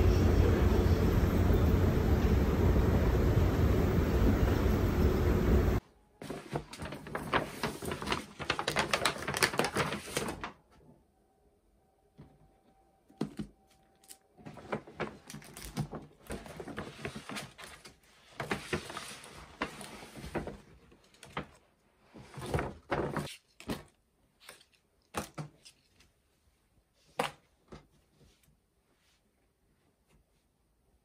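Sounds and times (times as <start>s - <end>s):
paper bag rustling and crinkling: 6.2s - 10.6s, 14.0s - 23.9s.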